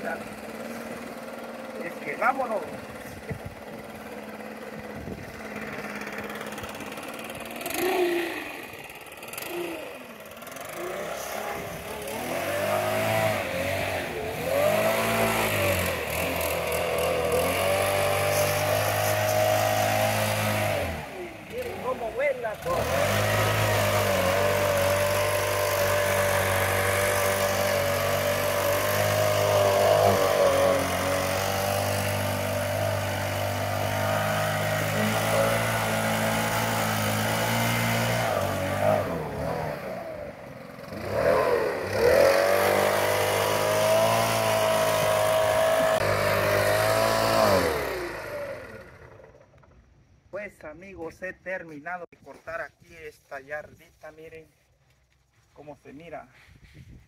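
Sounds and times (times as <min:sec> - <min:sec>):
leaf blower running: 0:00.0 - 0:49.9.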